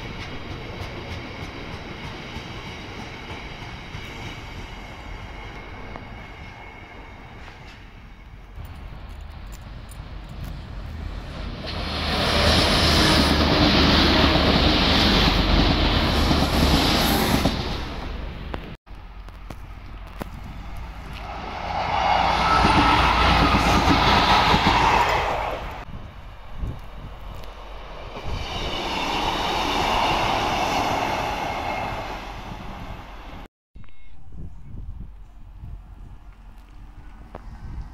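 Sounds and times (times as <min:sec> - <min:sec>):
train wheels rushing: 0:00.0 - 0:18.4, 0:20.3 - 0:25.9, 0:27.4 - 0:33.5.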